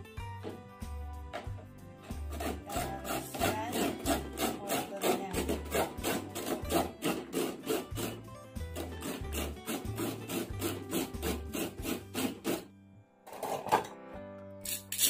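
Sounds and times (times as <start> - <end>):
background music: 0.0 - 15.0
carrot rasping on grater: 2.3 - 12.6.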